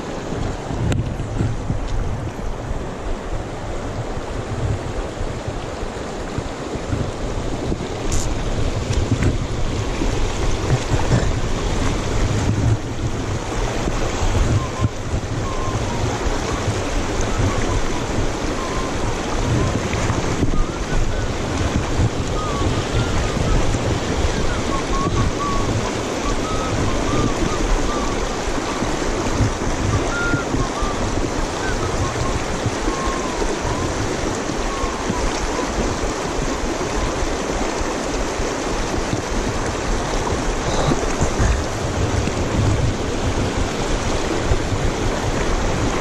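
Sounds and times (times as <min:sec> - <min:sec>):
river rushing over rocks: 0:00.0 - 0:46.0
wind buffeting microphone: 0:00.0 - 0:46.0
person whistling a tune: 0:14.5 - 0:16.1, 0:18.6 - 0:19.0, 0:20.4 - 0:21.3, 0:22.3 - 0:28.8, 0:29.9 - 0:34.0, 0:34.7 - 0:35.7.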